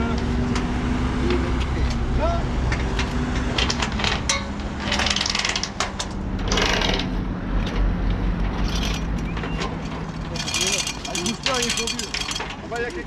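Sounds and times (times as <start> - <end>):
mechanical clicking and clanking: 2.8 - 13.0.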